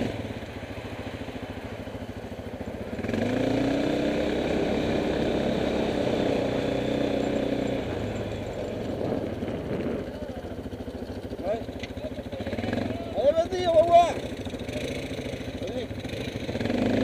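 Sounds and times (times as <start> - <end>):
quad engine revving: 0.0 - 0.6, 2.7 - 17.0.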